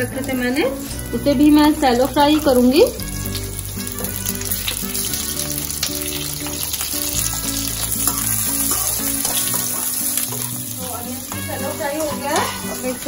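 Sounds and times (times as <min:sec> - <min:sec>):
background music: 0:00.0 - 0:13.0
onions sizzling in hot oil: 0:00.0 - 0:13.0.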